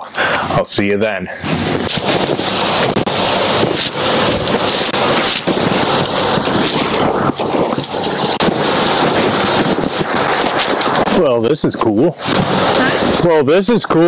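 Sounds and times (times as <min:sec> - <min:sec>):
waterfall rushing: 0:01.4 - 0:11.3.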